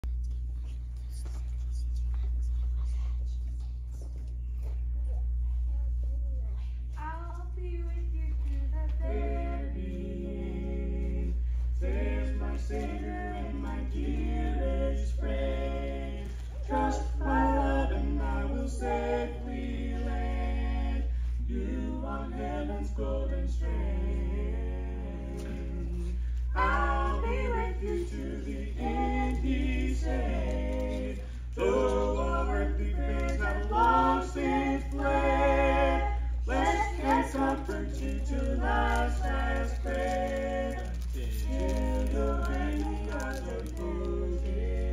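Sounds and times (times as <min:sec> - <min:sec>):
steady low hum: 0:00.0 - 0:44.9
vocal quartet singing a cappella: 0:08.6 - 0:44.9.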